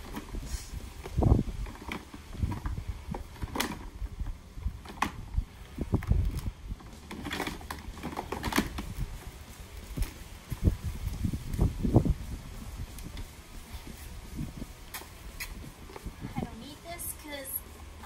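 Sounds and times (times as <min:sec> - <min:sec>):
clicks and knocks of handled parts: 0:06.0 - 0:09.0.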